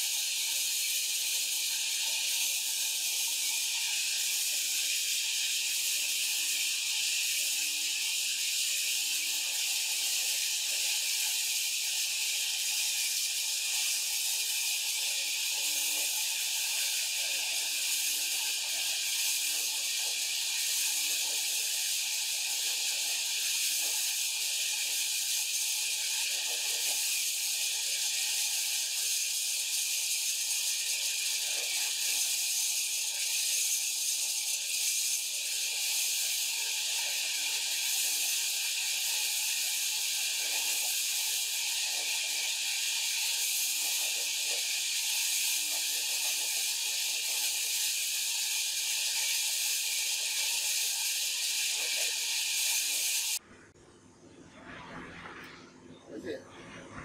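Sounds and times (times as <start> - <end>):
band saw cutting through log: 30.2 - 53.4.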